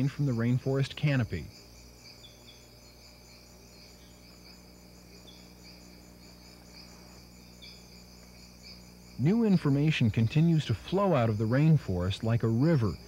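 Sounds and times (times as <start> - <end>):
insect chorus chirring: 0.0 - 13.0
short high insect chirps: 1.5 - 10.7.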